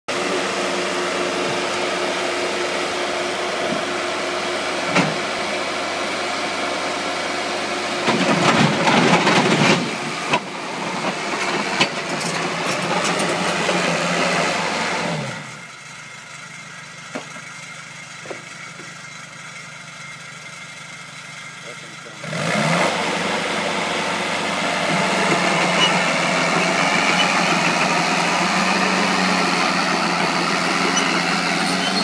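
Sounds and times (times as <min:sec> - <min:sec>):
model crawler engine running: 0:00.1 - 0:32.0
tracks clattering and clanking: 0:08.0 - 0:13.9, 0:24.8 - 0:32.0.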